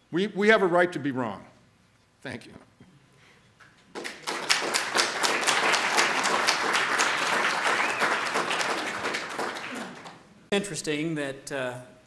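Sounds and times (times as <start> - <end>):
audience applauding: 3.9 - 10.3.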